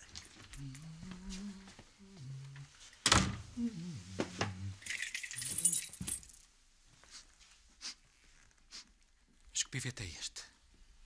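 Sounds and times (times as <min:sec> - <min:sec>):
keys jangling: 0:04.8 - 0:06.5.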